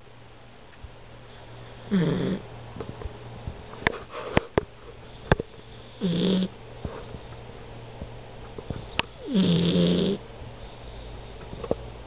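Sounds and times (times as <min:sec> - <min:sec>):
faint steady hum: 0:00.0 - 0:12.0
puppy snoring: 0:01.3 - 0:02.5, 0:05.1 - 0:07.2, 0:08.7 - 0:11.5.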